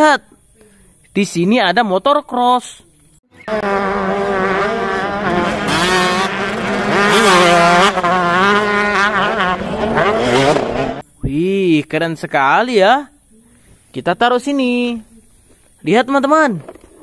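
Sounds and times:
dirt bike engines revving: 3.3 - 11.0.

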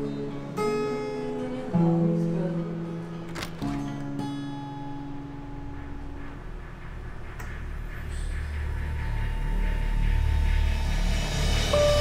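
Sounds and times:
acoustic guitar chords: 0.0 - 6.2.

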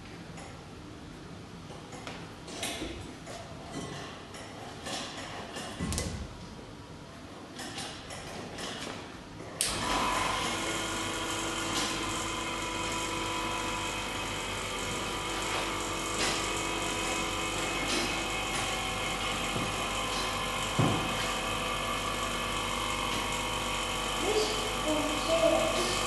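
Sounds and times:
vacuum pump whining: 9.6 - 26.0.

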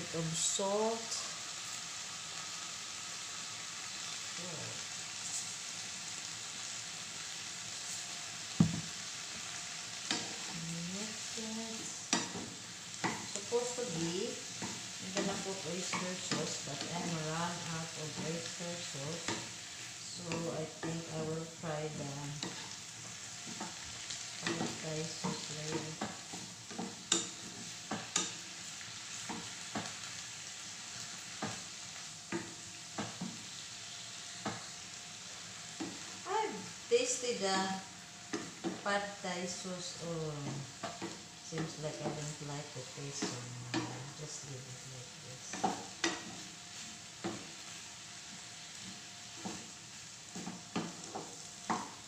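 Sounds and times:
vegetables sizzling in a frying pan: 0.0 - 52.0
spatula scraping and knocking pan: 12.0 - 30.0, 34.4 - 34.7, 40.4 - 42.4, 45.4 - 52.0.

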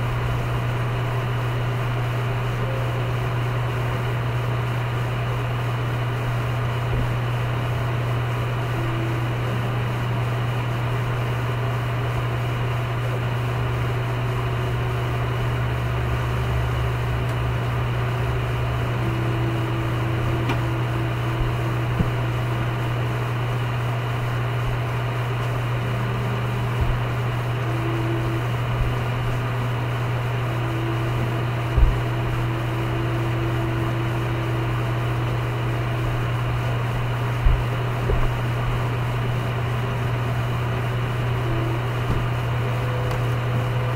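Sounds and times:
low hum and hiss: 0.0 - 43.9
feet thumping on carpet: 20.3 - 22.6, 26.7 - 27.2, 31.6 - 32.4, 37.4 - 38.9.

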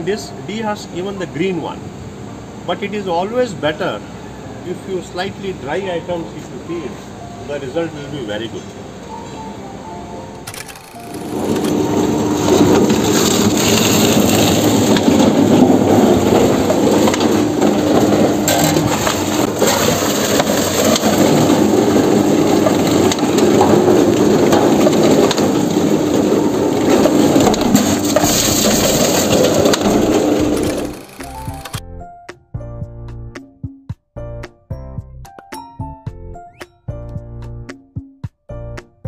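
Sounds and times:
electric motor hum: 10.4 - 31.8
husks tearing and crushing: 10.9 - 31.8.

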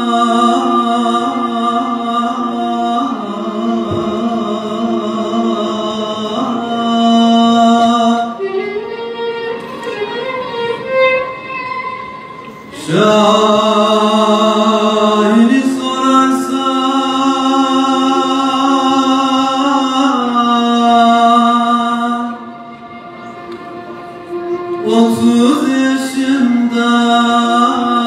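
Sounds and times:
man singing a lament: 0.0 - 8.4, 12.8 - 22.5, 24.8 - 28.0.

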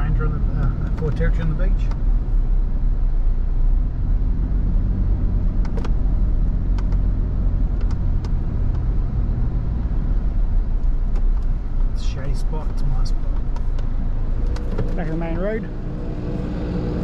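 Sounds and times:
engine and tyre drone in car cabin: 0.0 - 17.0.

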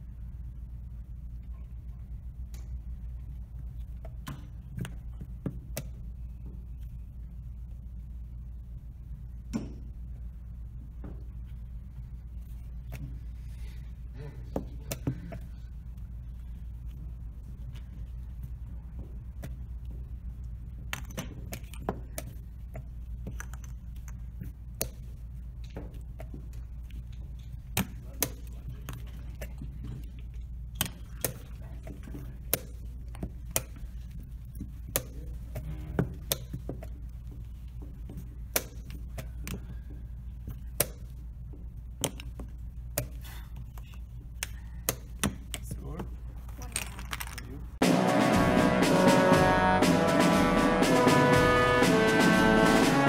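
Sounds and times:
low steady hum: 0.0 - 53.0
chess pieces clacking on board: 46.5 - 47.5.

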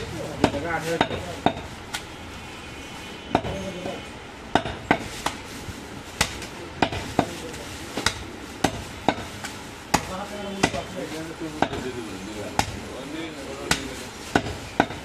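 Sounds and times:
blade chopping meat: 12.5 - 12.9, 13.6 - 15.0.

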